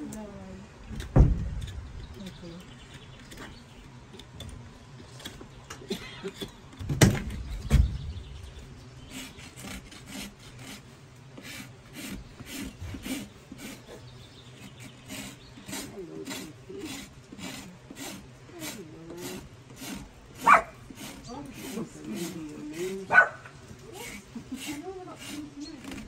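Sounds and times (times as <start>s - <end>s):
heavy thumps: 0.9s - 2.5s, 6.8s - 8.4s
hoof rasp scraping hoof: 8.4s - 26.0s.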